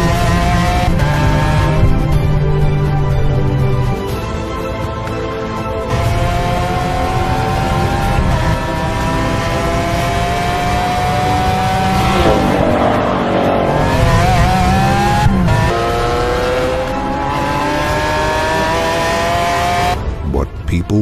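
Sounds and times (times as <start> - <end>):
car engine revving hard: 0.0 - 2.4, 5.9 - 20.0.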